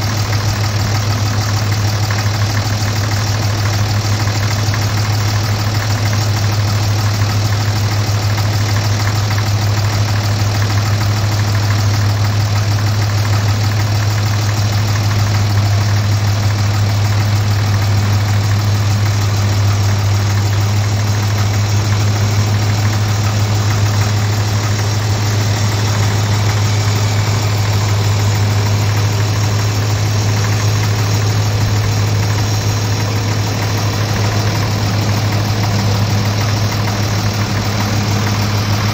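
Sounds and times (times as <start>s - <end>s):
tractor engine idling: 0.0s - 38.9s.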